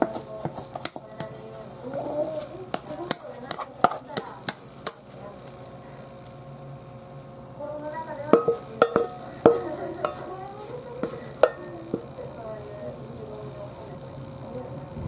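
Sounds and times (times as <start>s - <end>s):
spatula knocking on bowl: 0.0s - 1.4s, 2.6s - 5.0s, 8.3s - 10.3s, 11.0s - 12.1s
spatula scraping dough in bowl: 0.0s - 5.2s, 8.3s - 12.2s.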